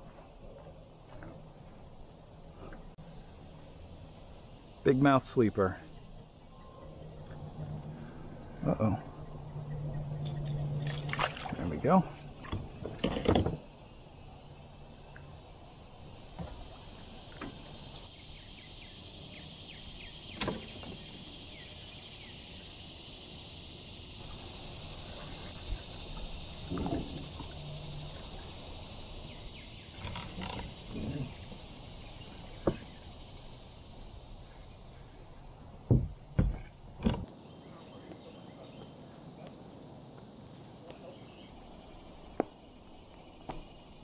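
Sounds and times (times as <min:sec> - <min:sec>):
steady high hiss: 0:03.0 - 0:09.1, 0:13.7 - 0:35.8.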